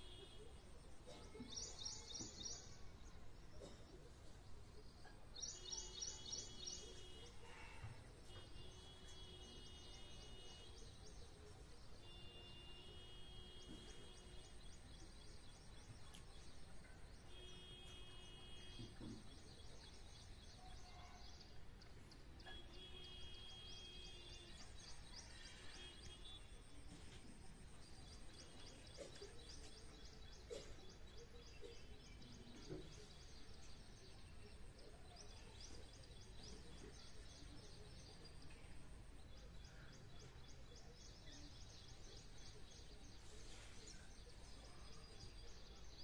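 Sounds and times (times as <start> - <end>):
birds chirping and trilling: 5.3 - 26.8.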